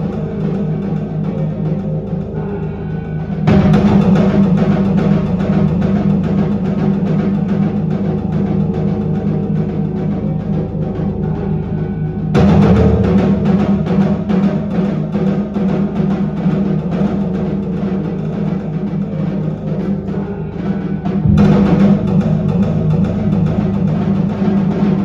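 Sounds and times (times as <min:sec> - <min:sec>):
solo drum performance: 0:20.9 - 0:25.0.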